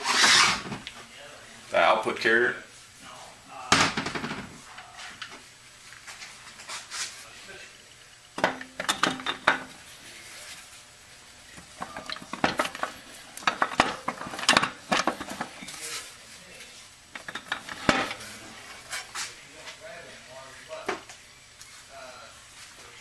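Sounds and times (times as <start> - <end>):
metal parts clinking and rattling: 11.8 - 15.6.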